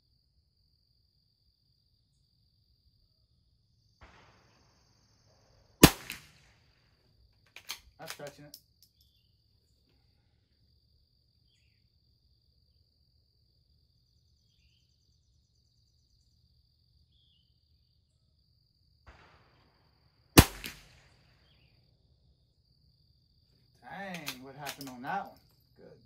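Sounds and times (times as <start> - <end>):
rifle shot with echo: 4.0 - 5.1, 5.8 - 6.8, 19.1 - 21.7.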